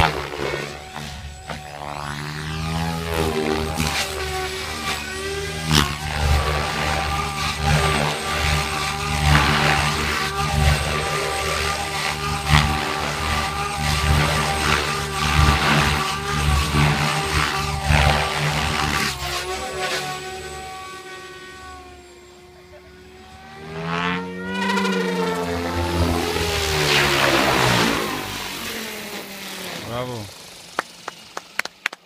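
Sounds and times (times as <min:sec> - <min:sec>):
rc helicopter motor and rotor whine: 0:00.0 - 0:32.0.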